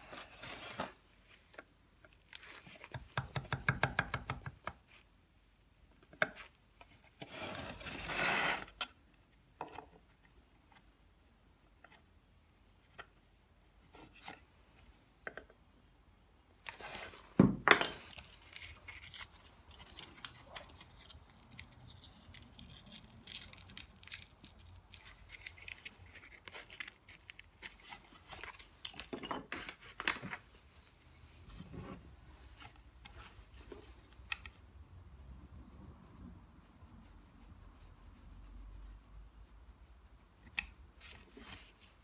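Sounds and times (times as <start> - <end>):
carving tool scraping wood: 7.2 - 8.8.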